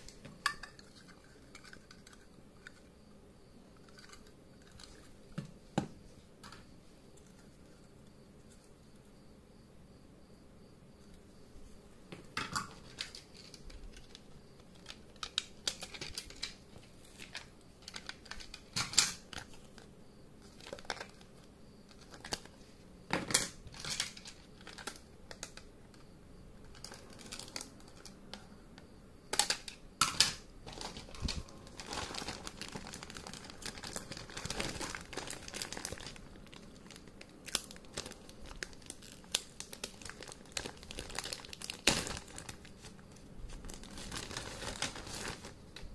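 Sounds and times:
plastic bag crinkling: 12.7 - 22.6, 26.7 - 28.2, 30.6 - 45.9.

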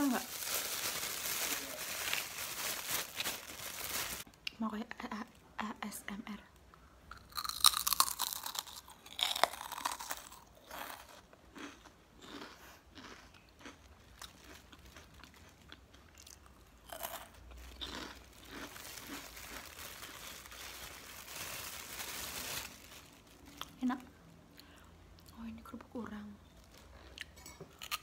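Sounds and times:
person crunching cracker: 7.1 - 23.7.

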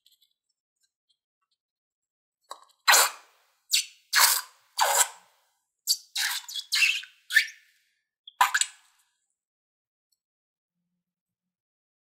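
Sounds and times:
slime squirting from balloon: 2.9 - 5.2.

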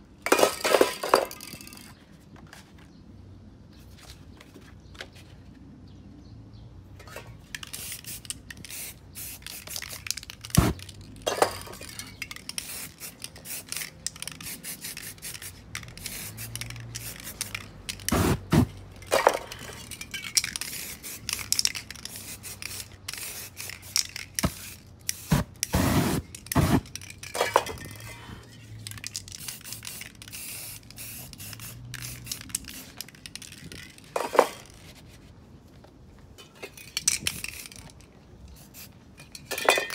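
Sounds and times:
spray paint can hissing: 7.6 - 11.0, 11.8 - 27.3, 28.8 - 33.4, 38.6 - 39.0.

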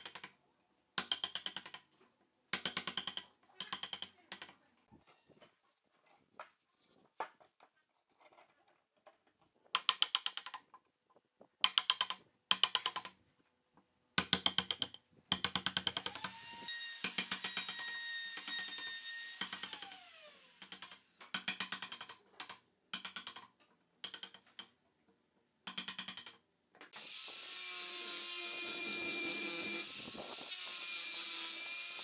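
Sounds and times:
mallet tapping wood chisel: 1.0 - 1.9, 2.6 - 4.5, 11.6 - 13.1, 14.2 - 16.3, 20.6 - 24.8, 25.7 - 26.4.

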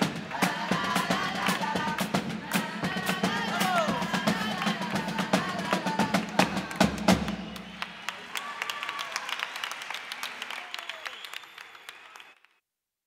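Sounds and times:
carnival drum music with melody: 0.0 - 7.8.

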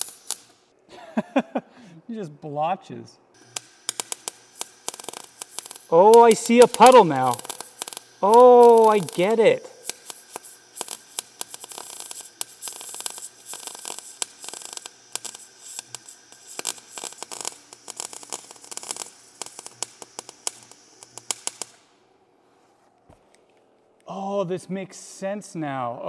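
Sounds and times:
welding arc crackling: 0.0 - 0.6, 3.4 - 22.0.

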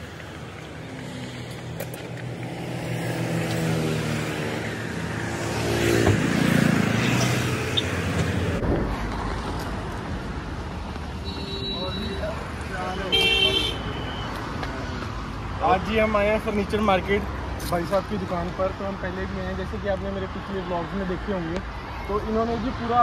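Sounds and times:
vehicle passing on road: 0.0 - 11.3.

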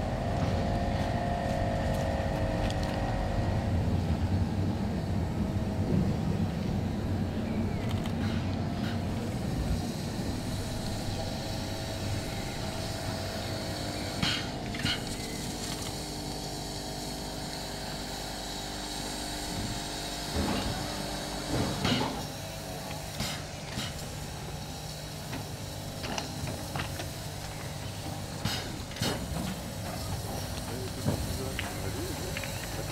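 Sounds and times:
mechanical hum and rumble: 0.0 - 32.9.

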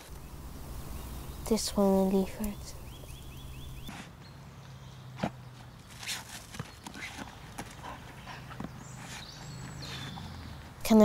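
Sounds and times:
bird chirping: 0.0 - 11.0
dog digging in soil: 5.9 - 10.4.

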